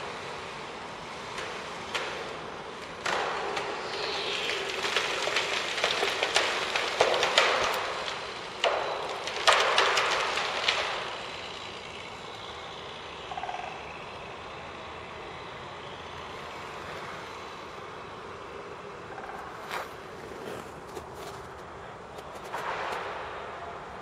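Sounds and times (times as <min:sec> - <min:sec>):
distant city traffic: 0:00.0 - 0:24.0
crackling and knocking: 0:01.3 - 0:11.7, 0:19.9 - 0:23.4.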